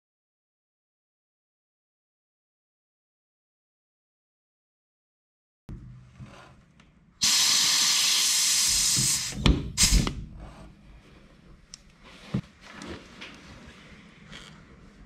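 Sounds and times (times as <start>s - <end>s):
compressed air blasting: 7.2s - 10.2s.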